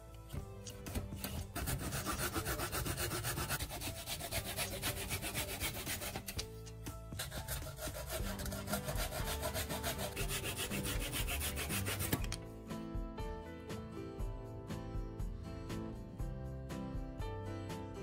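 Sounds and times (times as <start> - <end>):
hand saw cutting wood: 0.9 - 6.5, 7.1 - 12.3.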